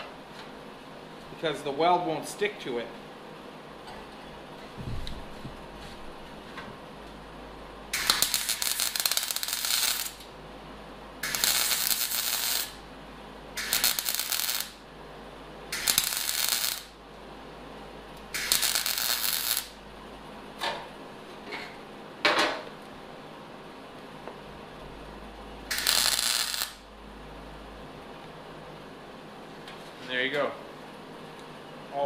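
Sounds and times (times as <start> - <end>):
welder arc crackling: 7.9 - 10.4, 11.2 - 12.9, 13.5 - 15.0, 15.7 - 17.0, 18.1 - 19.8, 25.7 - 26.9.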